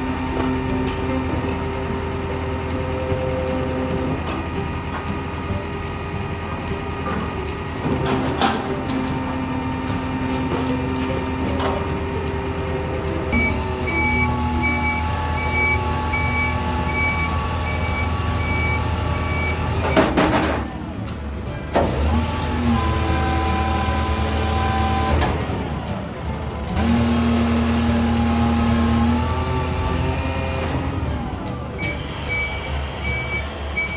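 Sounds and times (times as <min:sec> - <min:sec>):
engine drone: 0:00.0 - 0:33.9
hydraulic whine: 0:00.0 - 0:33.9
high warning beep: 0:13.4 - 0:20.0, 0:31.8 - 0:33.9.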